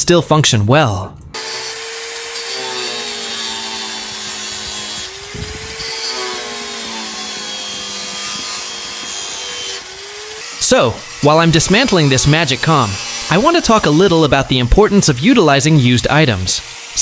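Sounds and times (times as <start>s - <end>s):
angle grinder cutting metal: 1.4s - 17.0s.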